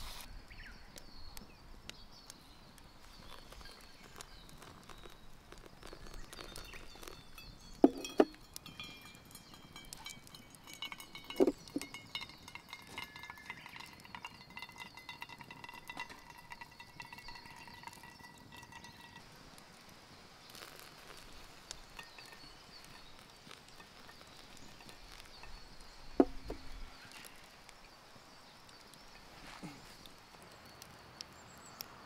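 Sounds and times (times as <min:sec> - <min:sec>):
thin ringing tones: 0:06.2 - 0:19.2, 0:21.8 - 0:27.2.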